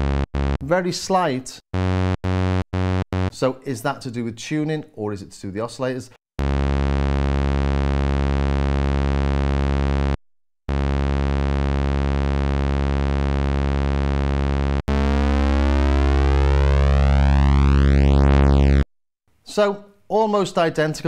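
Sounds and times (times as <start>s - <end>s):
low synthesizer sawtooth note: 0.0s - 0.7s, 1.8s - 3.4s, 6.4s - 18.9s.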